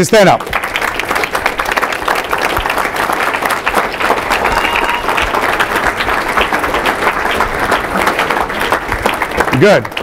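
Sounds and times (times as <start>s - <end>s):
audience applauding: 0.0s - 10.0s.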